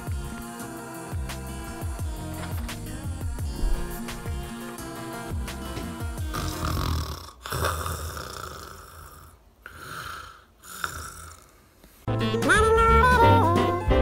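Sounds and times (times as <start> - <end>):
music: 0.0 - 6.9, 12.1 - 14.0
person snoring: 0.0 - 11.9.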